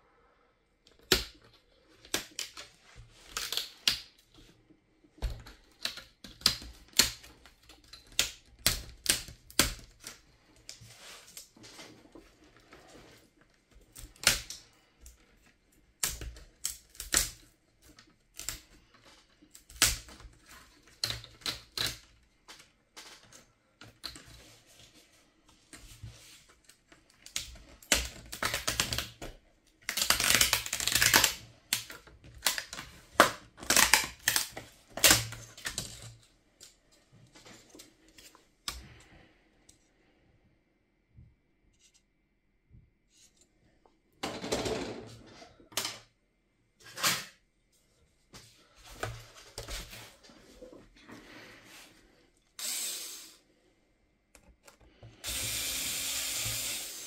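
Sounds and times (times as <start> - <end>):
plastic laptop parts clicking: 0.9 - 4.4, 5.2 - 10.8, 16.0 - 24.3, 27.0 - 36.8.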